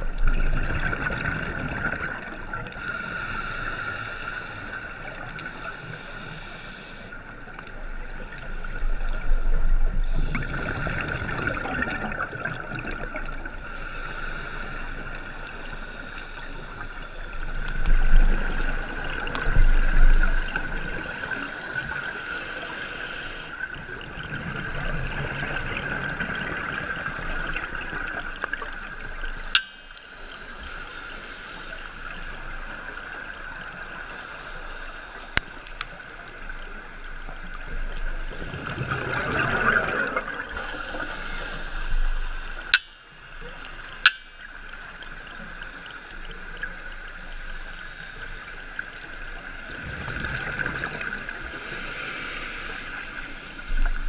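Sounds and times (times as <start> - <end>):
underwater regulator bubbles gurgling: 0.0 - 29.8, 37.3 - 42.9, 49.7 - 54.0.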